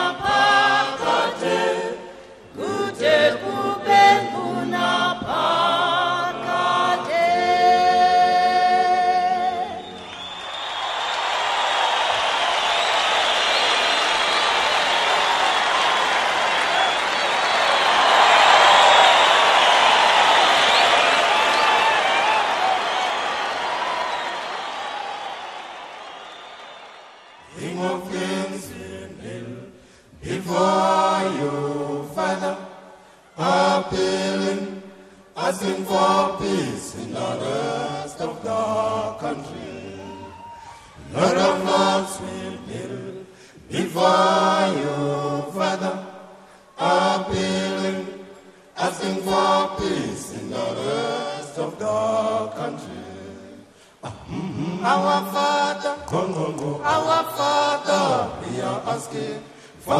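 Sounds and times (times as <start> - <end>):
a cappella choir chanting: 0.0 - 59.9.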